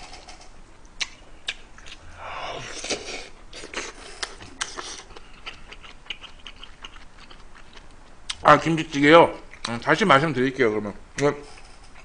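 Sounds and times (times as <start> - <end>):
sharp mouth clicks: 0.8 - 2.1
chewing: 1.0 - 8.4.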